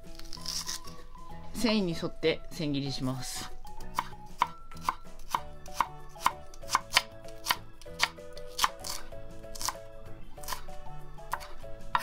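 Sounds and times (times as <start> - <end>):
knife slicing on wooden board: 0.1 - 1.0, 3.9 - 9.8, 10.4 - 12.0.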